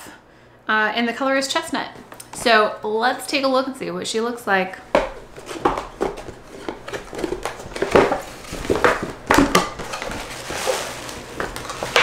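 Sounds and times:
packaging rustling and crinkling: 5.1 - 12.0.

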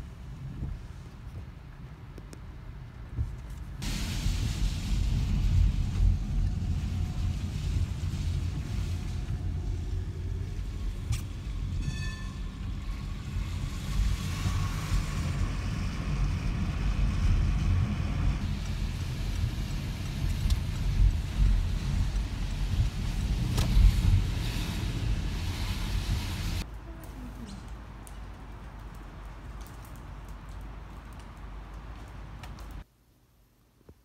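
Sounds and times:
engine and road rumble: 0.0 - 32.9
tyre hiss on wet road: 3.8 - 11.8, 12.7 - 28.0.

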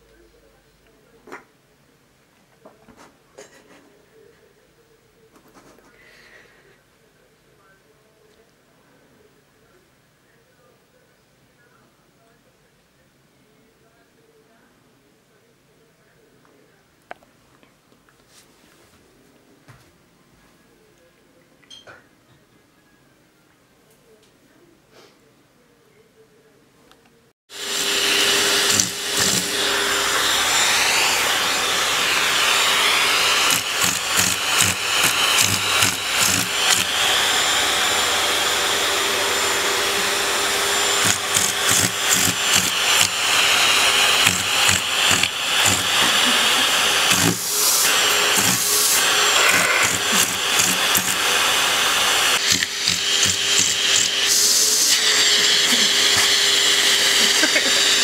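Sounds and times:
vacuum cleaner suction: 27.5 - 58.0.

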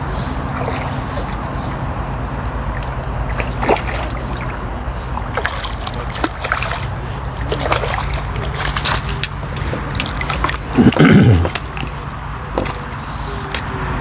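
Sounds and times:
fish splashing in water: 0.0 - 14.0
steady low hum: 0.0 - 14.0.

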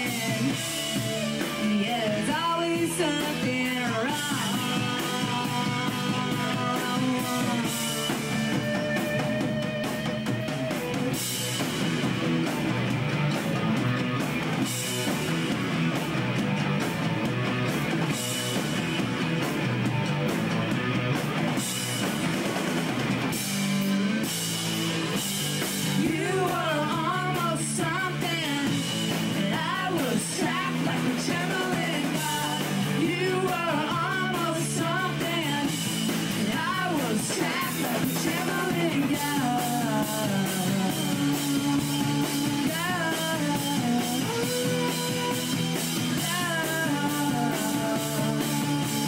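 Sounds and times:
person singing: 0.0 - 10.0, 26.0 - 49.0
drum kit: 0.0 - 49.0
electric guitar: 0.0 - 49.0.

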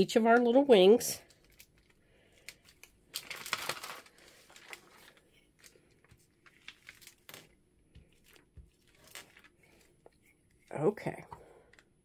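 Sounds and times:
paper rustling: 1.3 - 10.0.

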